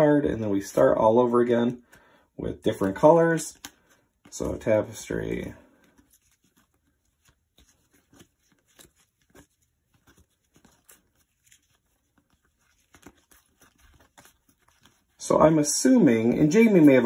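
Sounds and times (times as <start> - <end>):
cards clicking and rustling: 2.6 - 15.2.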